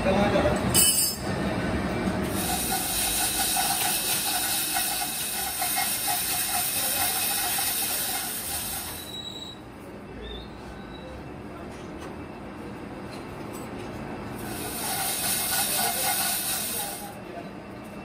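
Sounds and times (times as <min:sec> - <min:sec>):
machinery hissing: 0:02.2 - 0:09.4, 0:14.4 - 0:17.2.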